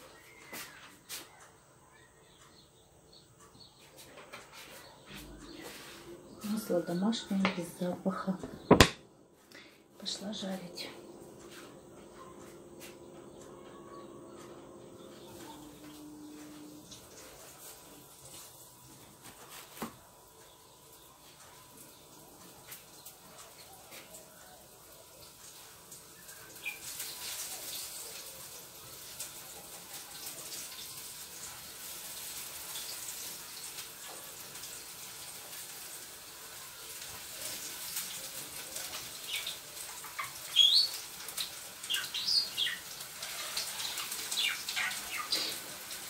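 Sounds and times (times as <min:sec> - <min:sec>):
food sizzling in hot oil: 0:21.8 - 0:46.0.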